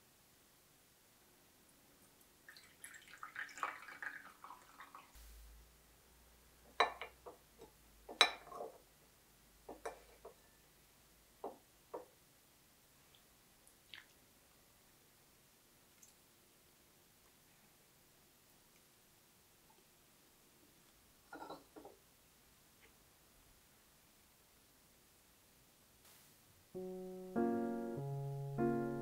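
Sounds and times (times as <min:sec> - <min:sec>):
coffee pouring into a cup: 0:02.5 - 0:05.1.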